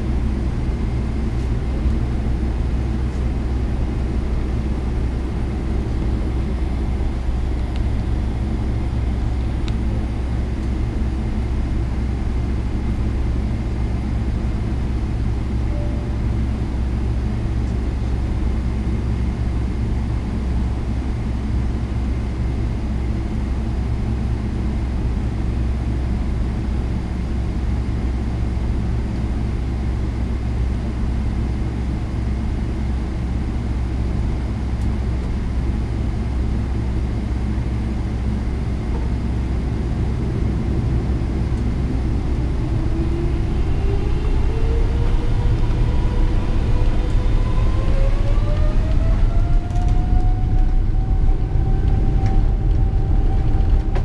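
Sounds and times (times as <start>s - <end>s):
airplane cabin rumble: 0.0s - 54.0s
jet engines spooling up: 34.8s - 54.0s.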